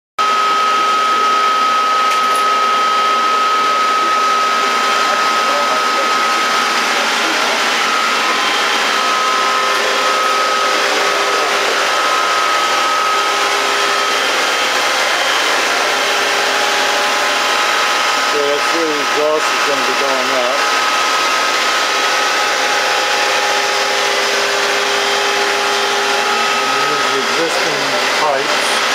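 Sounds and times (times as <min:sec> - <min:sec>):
constant high whine: 0:00.2 - 0:28.9
engine room rushing hiss: 0:03.6 - 0:28.9.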